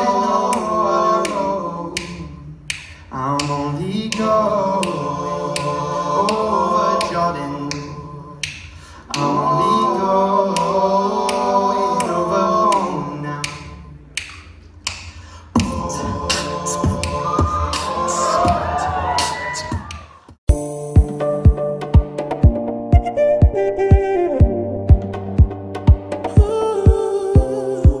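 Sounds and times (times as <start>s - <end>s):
men singing a cappella harmony: 0.0s - 14.1s, 15.4s - 19.6s, 26.3s - 28.0s
sharp beat clicks: 19.9s - 28.0s.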